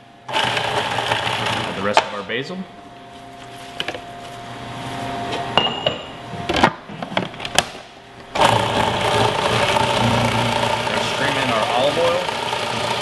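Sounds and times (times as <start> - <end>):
food processor motor running: 0.3 - 1.9, 8.3 - 13.0.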